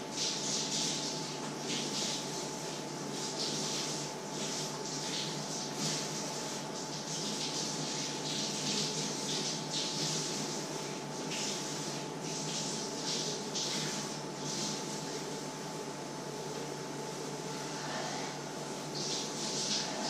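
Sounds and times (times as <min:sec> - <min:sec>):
faint high hum: 0:00.0 - 0:20.0.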